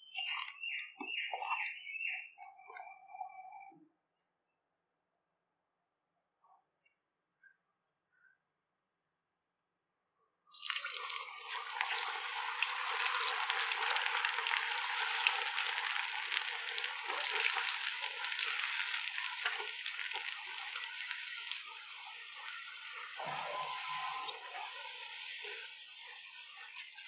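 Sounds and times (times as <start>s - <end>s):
food deep-frying in oil: 10.5s - 27.0s.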